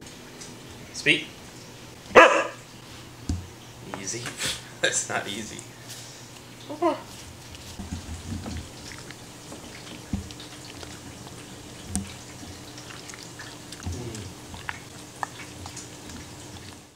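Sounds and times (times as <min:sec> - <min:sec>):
dog gnawing on a chew stick: 0:07.1 - 0:16.9.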